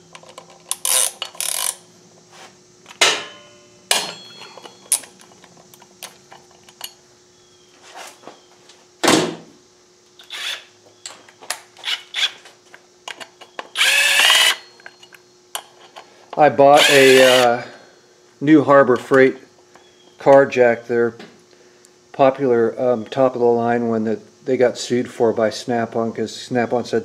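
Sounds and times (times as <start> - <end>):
metal tools clanking on wheel: 3.0 - 5.5
impact wrench running: 10.2 - 10.7, 13.8 - 14.7, 16.7 - 17.6.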